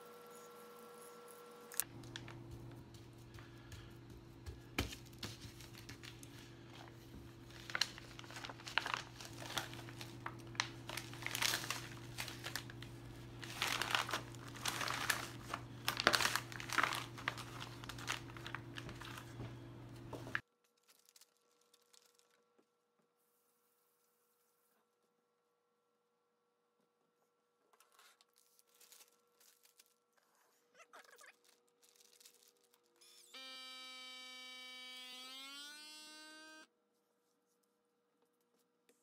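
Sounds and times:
steady low hum: 0.2s - 20.4s
plastic bag crinkling: 5.0s - 19.4s, 20.2s - 22.5s, 28.4s - 30.2s, 31.0s - 33.0s.

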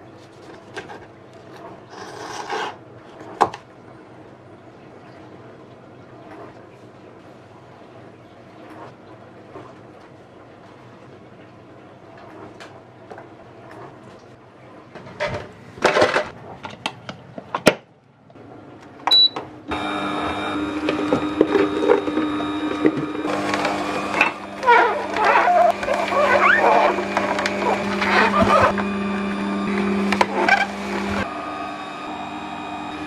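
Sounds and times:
plastic parts clattering: 15.2s - 17.8s
juicer motor humming: 19.1s - 33.0s.

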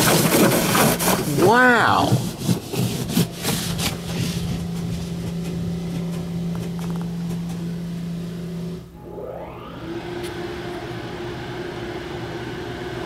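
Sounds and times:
brush strips slapping car: 0.0s - 7.7s
low machine hum: 3.1s - 13.0s.

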